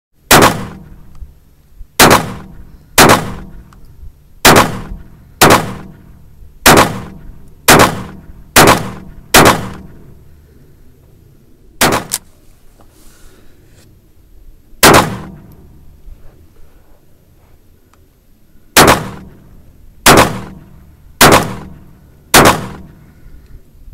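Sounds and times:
pistol shots with echo: 0:00.3 - 0:01.0, 0:02.0 - 0:03.6, 0:04.4 - 0:10.0, 0:11.8 - 0:12.2, 0:14.8 - 0:15.5, 0:18.8 - 0:19.4, 0:20.0 - 0:23.0.

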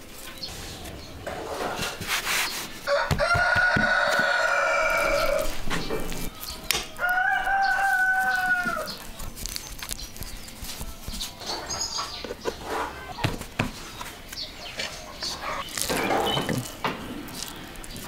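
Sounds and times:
rooster crowing: 0:02.8 - 0:05.6, 0:07.0 - 0:09.0.

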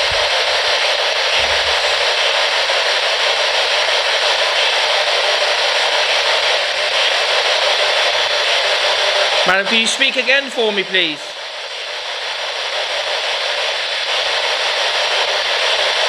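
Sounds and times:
radio static hiss: 0:09.3 - 0:11.5.

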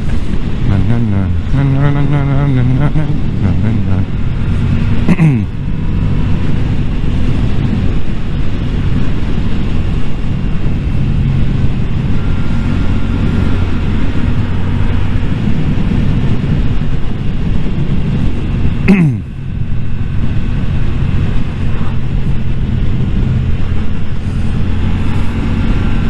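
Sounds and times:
motorcycle engine running: 0:00.0 - 0:26.0
wind rushing over microphone: 0:00.0 - 0:26.0.

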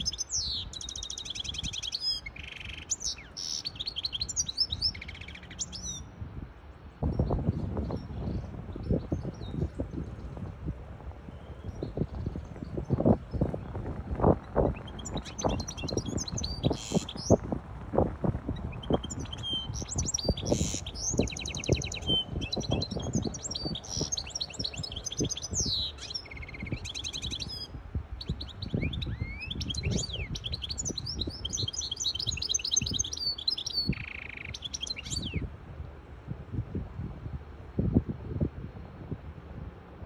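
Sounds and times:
finch singing: 0:00.0 - 0:06.1, 0:11.3 - 0:17.5, 0:18.5 - 0:35.4.

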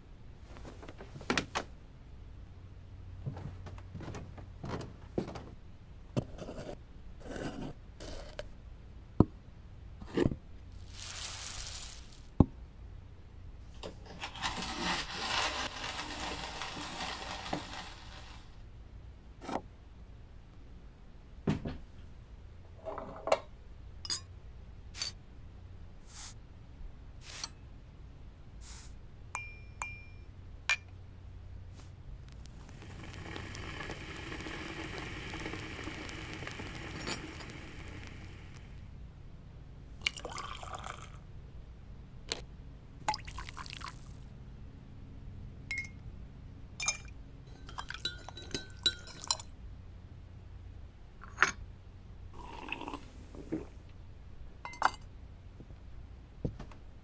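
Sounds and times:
grainy hiss: 0:10.7 - 0:12.4, 0:14.5 - 0:18.6, 0:26.0 - 0:26.4, 0:27.2 - 0:27.5, 0:28.6 - 0:29.0, 0:31.7 - 0:38.9
lid scraping on jar: 0:14.1 - 0:18.4
spoon clinking against cup: 0:29.4 - 0:30.9, 0:45.7 - 0:46.0, 0:46.8 - 0:49.5.

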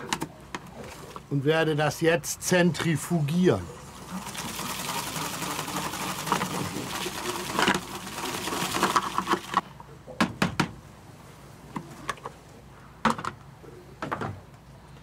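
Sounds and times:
salad spinner whirring and rattling: 0:04.0 - 0:09.6.

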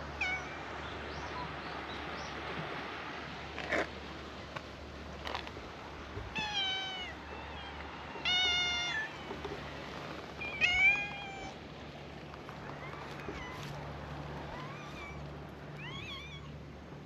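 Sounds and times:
cat meowing: 0:10.6 - 0:11.6.

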